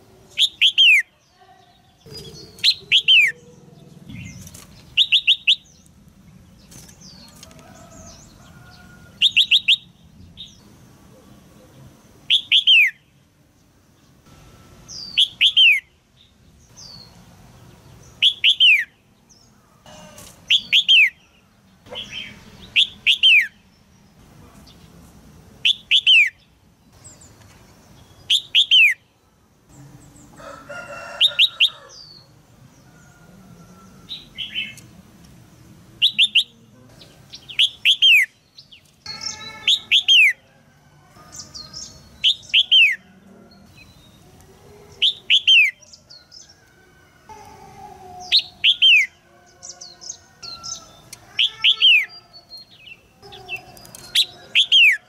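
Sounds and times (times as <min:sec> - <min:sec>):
bird chirping calls: 0:00.0 - 0:35.0, 0:36.0 - 0:40.5, 0:41.2 - 0:55.0
rough fuller bird call: 0:37.4 - 0:40.4.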